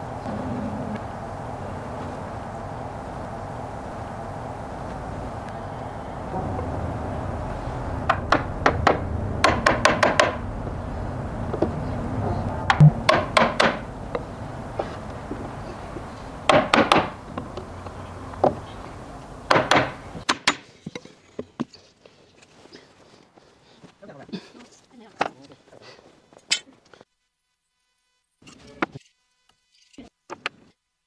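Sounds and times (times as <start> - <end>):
hammer knocking on wood frame: 8.1 - 10.4, 12.7 - 13.9, 16.5 - 17.2, 19.5 - 20.6.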